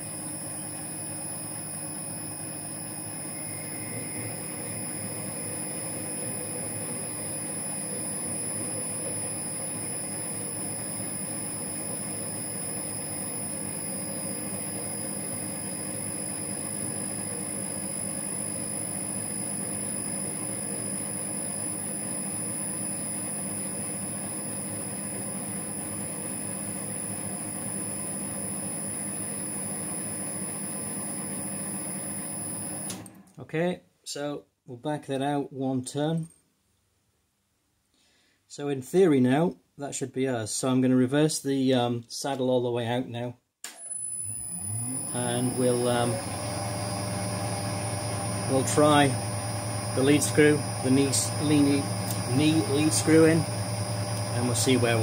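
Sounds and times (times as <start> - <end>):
metal lathe whining: 0.0 - 33.1, 43.9 - 55.0.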